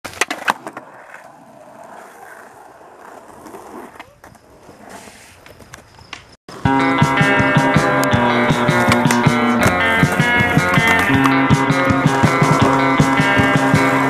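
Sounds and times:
skateboard wheels rolling on concrete: 0:00.0 - 0:14.0
skateboard clacks: 0:00.1 - 0:14.0
loud guitar music: 0:06.5 - 0:14.0.

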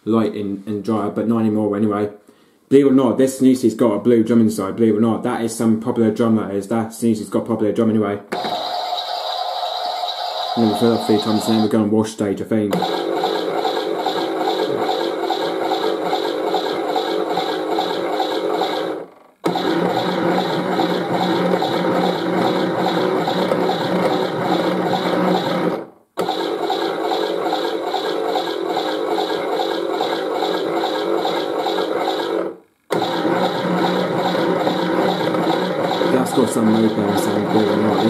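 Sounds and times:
toy washing machine filling: 0:08.4 - 0:11.7, 0:12.8 - 0:38.0.

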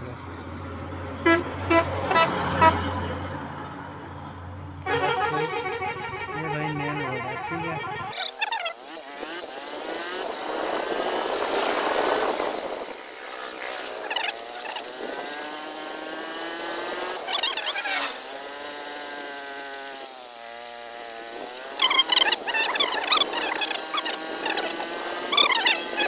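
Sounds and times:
rush of wind: 0:09.1 - 0:15.6
motorcycle engine shifting gears: 0:21.2 - 0:26.0.

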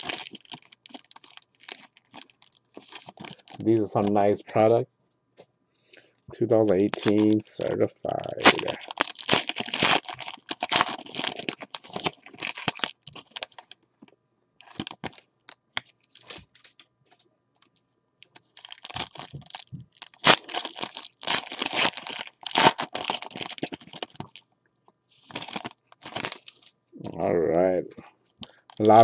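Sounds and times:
foil wrappers tearing and crinkling: 0:00.0 - 0:04.4, 0:06.7 - 0:13.8, 0:14.6 - 0:15.2, 0:18.2 - 0:24.4, 0:25.2 - 0:26.7, 0:28.4 - 0:29.0.

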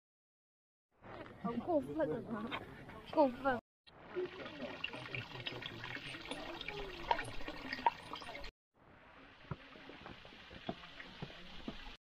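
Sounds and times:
shallow water running over stone: 0:04.0 - 0:08.5, 0:09.2 - 0:12.0
water pouring into stone basin: 0:04.0 - 0:08.5, 0:09.2 - 0:12.0.

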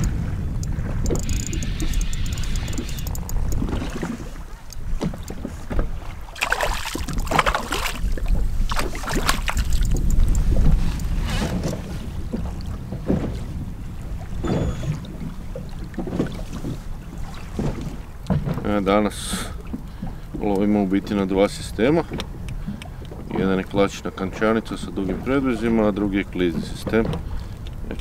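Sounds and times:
low rumble: 0:00.0 - 0:05.0
wind buffeting microphone: 0:00.0 - 0:28.0.

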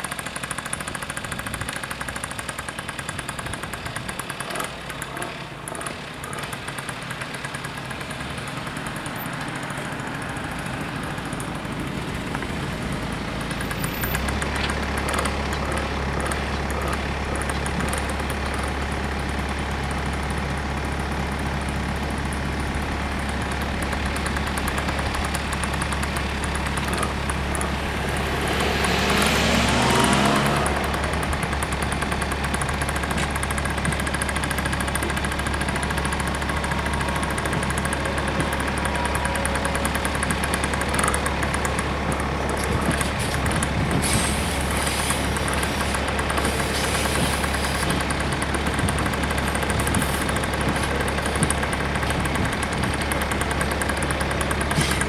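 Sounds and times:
car engines idling: 0:00.0 - 0:55.0
vehicle passing close: 0:25.2 - 0:33.6.

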